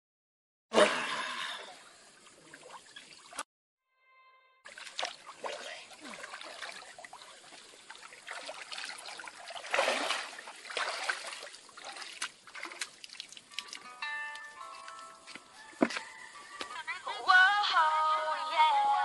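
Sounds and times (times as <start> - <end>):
water splashing from wading: 4.7 - 13.9.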